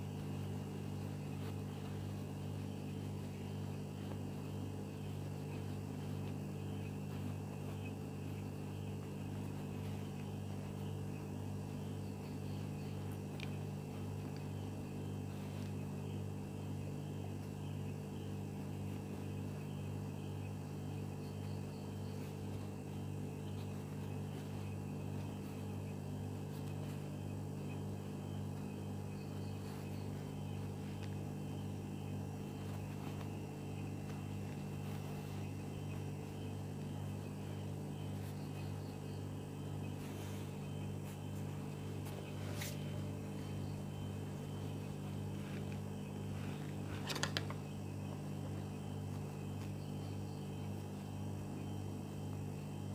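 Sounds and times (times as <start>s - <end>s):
fabric rustling: 0.0s - 10.9s, 27.8s - 38.8s, 39.9s - 47.6s
steady low hum: 0.0s - 52.9s.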